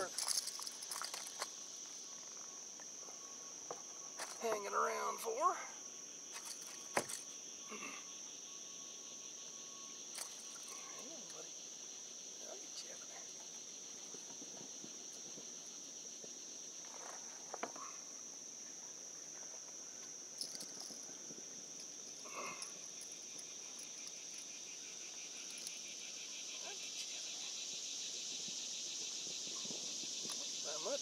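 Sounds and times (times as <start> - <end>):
landing net clicks and rustles: 0.0 - 1.5
high-pitched insect chorus: 0.0 - 31.0
pulsing insect layer: 0.0 - 31.0.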